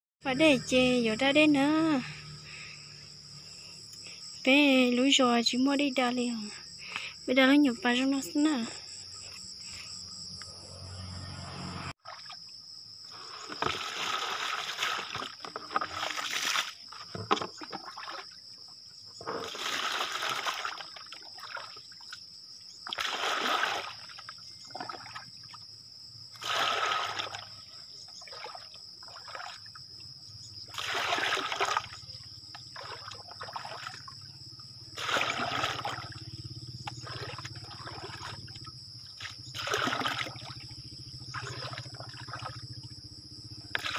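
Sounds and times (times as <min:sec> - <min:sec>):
water pouring and splashing: 0:13.1 - 0:18.4, 0:19.2 - 0:21.8, 0:22.8 - 0:25.4, 0:26.4 - 0:27.6, 0:28.3 - 0:29.7, 0:30.7 - 0:32.0, 0:32.7 - 0:34.0, 0:35.0 - 0:36.2, 0:36.9 - 0:38.6, 0:39.2 - 0:40.6, 0:41.3 - 0:42.6.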